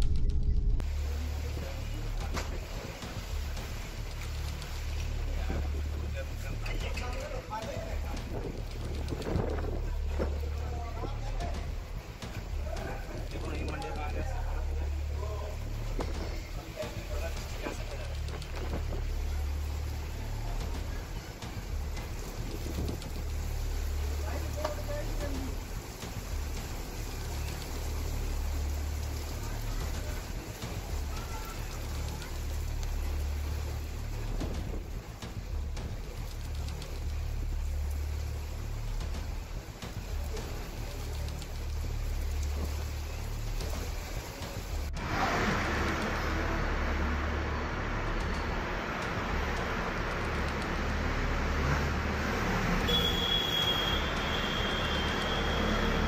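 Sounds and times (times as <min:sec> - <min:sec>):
steady rain falling: 0:00.0 - 0:56.0
road traffic noise: 0:00.8 - 0:56.0
wind buffeting microphone: 0:07.7 - 0:13.3.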